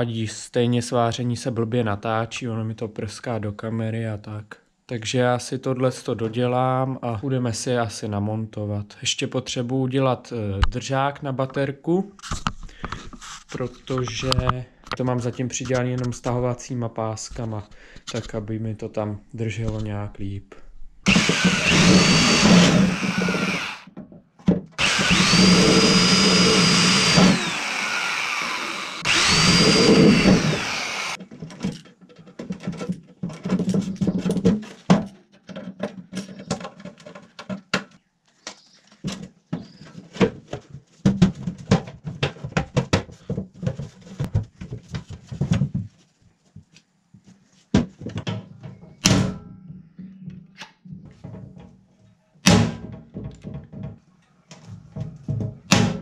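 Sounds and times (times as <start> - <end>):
electric drill boring through metal: 21.0 - 23.9, 24.8 - 31.2.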